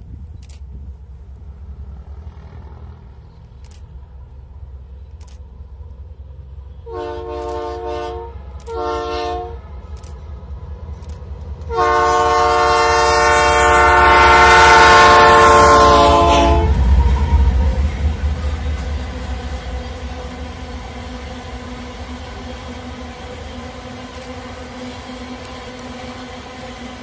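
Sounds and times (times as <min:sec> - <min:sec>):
freight train rumbling: 0:00.0 - 0:27.0
locomotive air horn blasts: 0:06.7 - 0:10.1, 0:11.7 - 0:17.5.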